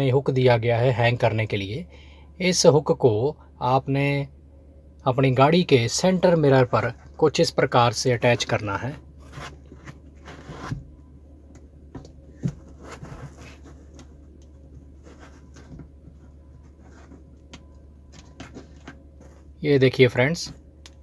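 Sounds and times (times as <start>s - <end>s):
soft rustling: 12.2s - 19.6s.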